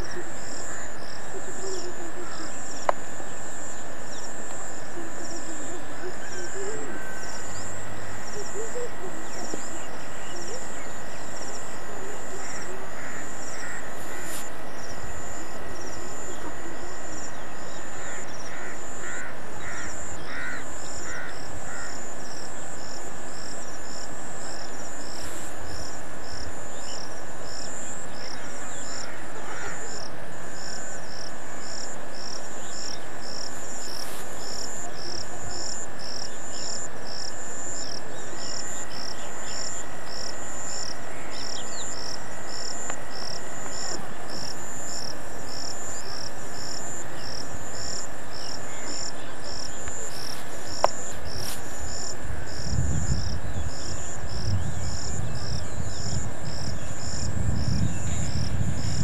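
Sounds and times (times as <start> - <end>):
bird calling: 0.0 - 3.0, 4.8 - 22.0, 28.2 - 30.1
high-pitched insect drone: 0.0 - 59.0
insect chirping: 0.0 - 59.0.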